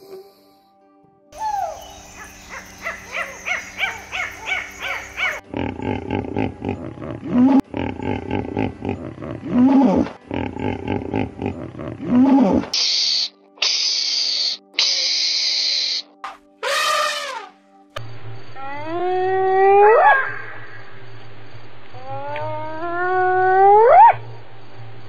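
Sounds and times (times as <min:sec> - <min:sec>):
hippopotamuses grunting: 0:05.0 - 0:12.8
animal calls rising and falling: 0:16.6 - 0:17.5
hippopotamus honking: 0:16.6 - 0:17.5.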